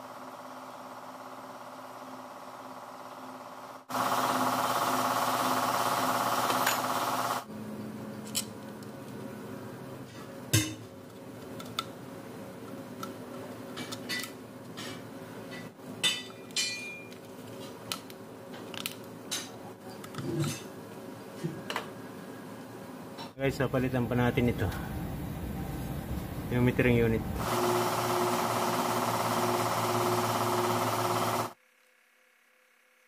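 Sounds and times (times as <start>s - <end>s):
loud steady machine noise: 2.3s - 7.5s, 23.6s - 31.6s.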